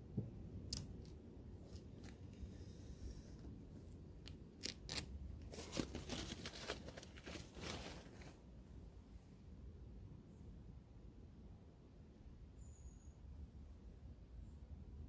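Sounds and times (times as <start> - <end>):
sticker paper crinkling and scraping: 4.6 - 8.4.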